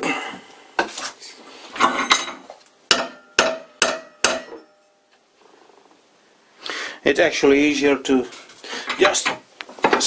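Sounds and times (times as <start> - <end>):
hammer striking steel bolt: 2.9 - 4.9.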